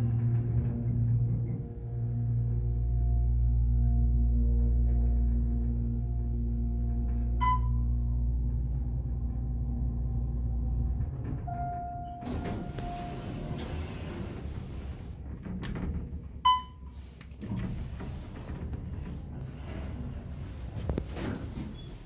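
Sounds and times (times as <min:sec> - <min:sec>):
elevator pump motor humming: 0:00.0 - 0:16.8.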